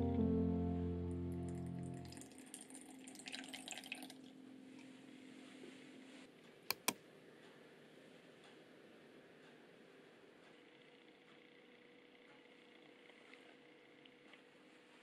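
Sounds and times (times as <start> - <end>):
water trickling and dripping: 2.0 - 4.3
sharp clicks: 6.7 - 7.0.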